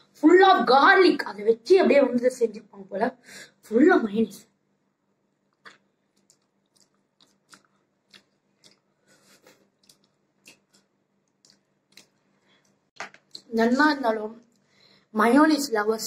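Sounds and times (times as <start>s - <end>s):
chewing with mouth clicks: 5.5s - 13.5s.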